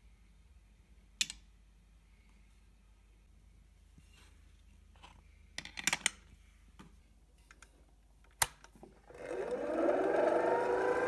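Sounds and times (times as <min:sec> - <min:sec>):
coffee grinder motor whine: 0:09.0 - 0:11.0.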